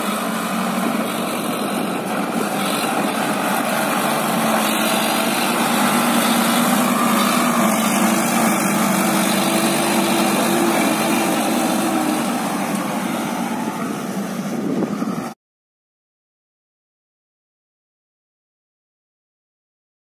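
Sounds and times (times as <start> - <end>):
tractor diesel engine running: 0.0 - 15.4.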